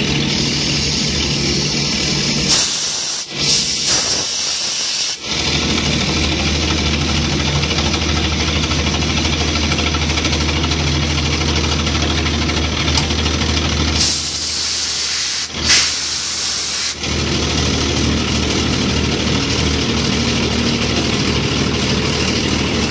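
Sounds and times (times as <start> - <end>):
milling machine humming: 0.0 - 22.9
coolant spray hissing: 0.2 - 6.7, 14.0 - 19.2.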